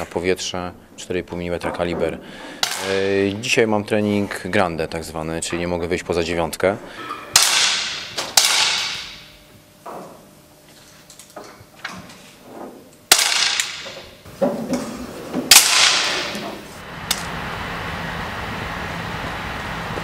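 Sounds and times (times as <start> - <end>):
air pistol shots: 7.4 - 9.4, 13.1 - 14.0, 15.5 - 16.4.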